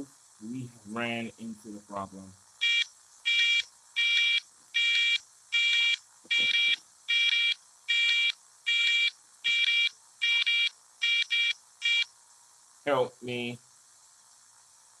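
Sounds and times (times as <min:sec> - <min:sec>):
electronic alarm beeping: 0:02.6 - 0:12.1.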